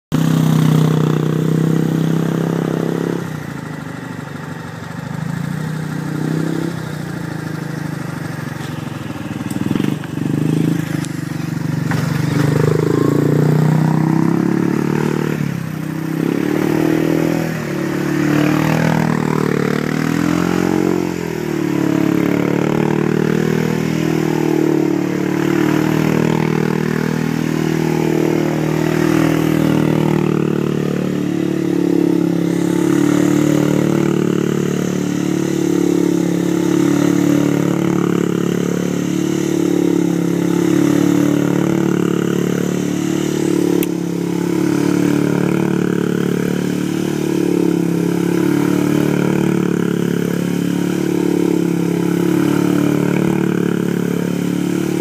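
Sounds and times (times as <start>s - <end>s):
atv engine revving: 0.1s - 55.0s.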